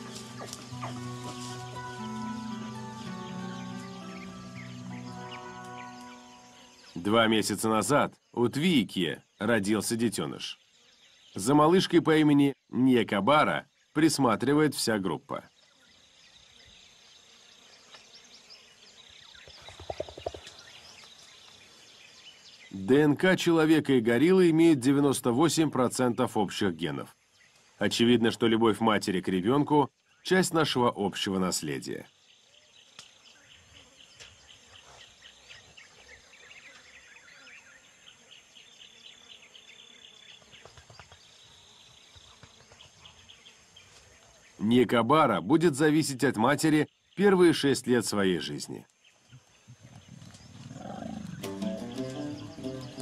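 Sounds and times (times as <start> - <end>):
high-pitched insect drone: 0.0 - 7.0, 51.2 - 53.0
high insect hum: 0.0 - 53.0.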